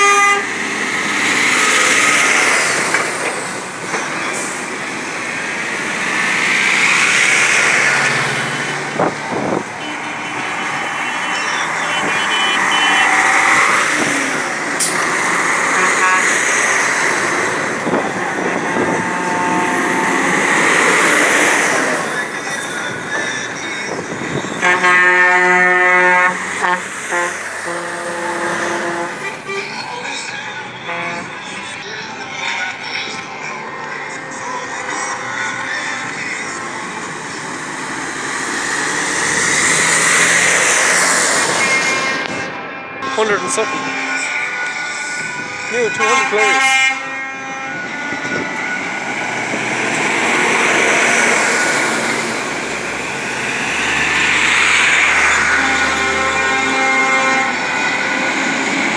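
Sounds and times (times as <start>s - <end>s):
truck air horn: 0.0s - 0.7s, 9.8s - 21.8s, 24.5s - 29.8s, 30.8s - 31.5s, 39.6s - 52.6s, 53.4s - 58.9s
heavy diesel lorries driving past: 0.0s - 58.9s.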